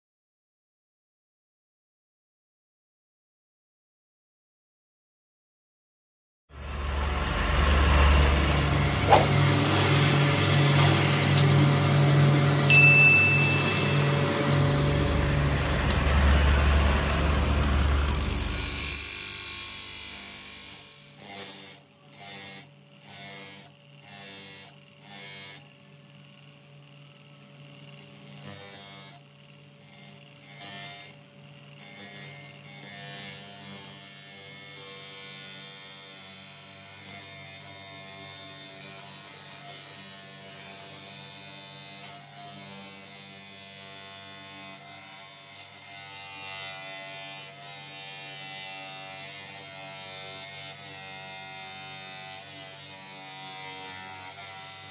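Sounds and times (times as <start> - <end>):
bench grinder humming: 6.6 - 54.9
blade grinding on wheel: 7.4 - 12.7, 13.3 - 19.5.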